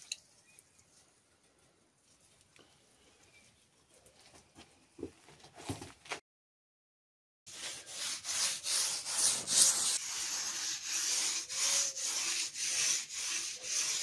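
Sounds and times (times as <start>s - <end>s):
sanding sponge rasping on plaster: 7.5s - 14.0s.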